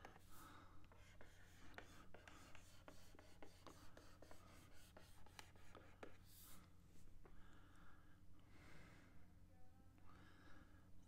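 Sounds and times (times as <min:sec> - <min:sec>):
stylus scratching drawing tablet: 0:00.0 - 0:06.6
low electrical hum: 0:00.0 - 0:11.0.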